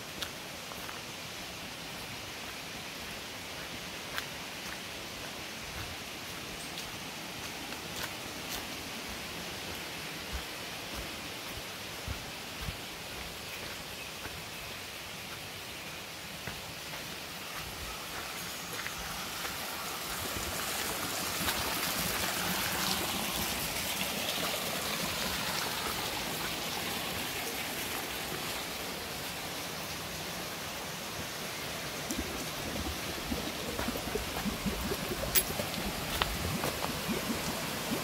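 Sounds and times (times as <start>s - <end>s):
stream water flowing: 0.0s - 38.0s
footsteps on leafy dirt path: 0.1s - 1.1s, 2.4s - 23.6s, 31.9s - 37.8s.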